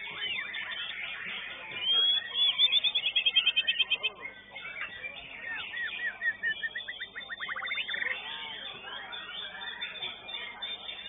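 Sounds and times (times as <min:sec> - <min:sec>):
songbird trilling: 0:01.8 - 0:08.2.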